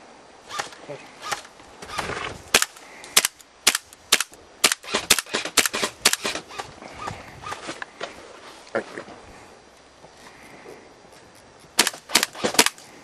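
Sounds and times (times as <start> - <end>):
airsoft gun shots: 0.6 - 6.7, 11.8 - 12.8.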